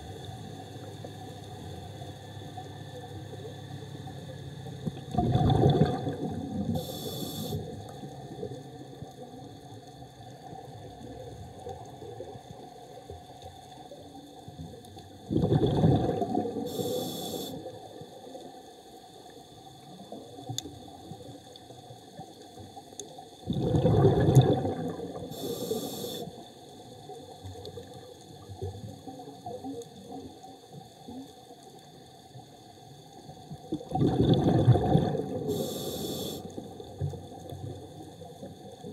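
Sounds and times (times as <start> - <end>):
bubbling underwater exhalation: 4.8 - 6.9, 15.3 - 16.8, 23.4 - 25.5, 33.7 - 35.8
regulator inhalation hiss: 6.8 - 7.8, 16.6 - 17.7, 25.2 - 26.5, 35.4 - 36.6.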